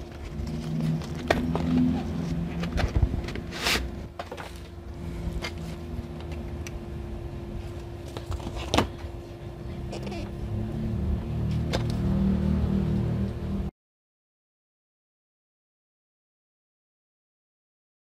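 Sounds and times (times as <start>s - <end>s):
low background hum: 0.0s - 13.7s
short scraping slide: 3.4s - 4.1s.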